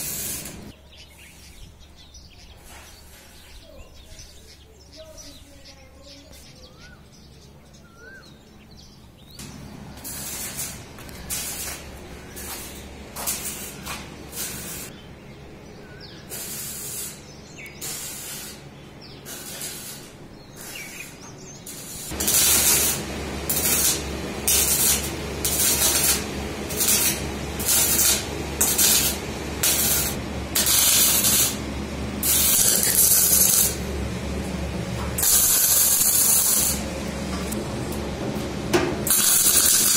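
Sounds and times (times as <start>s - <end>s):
welding arc crackling: 0.0s - 0.8s, 9.4s - 15.0s, 16.2s - 38.0s, 39.0s - 39.9s.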